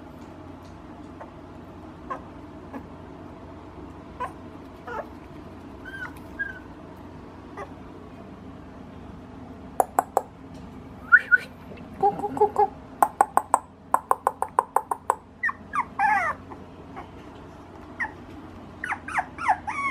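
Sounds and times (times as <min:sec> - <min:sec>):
puppy whimpering and whining: 0:02.0 - 0:02.9, 0:04.2 - 0:05.2, 0:05.8 - 0:06.8, 0:07.5 - 0:07.8, 0:15.4 - 0:17.2, 0:18.0 - 0:19.9.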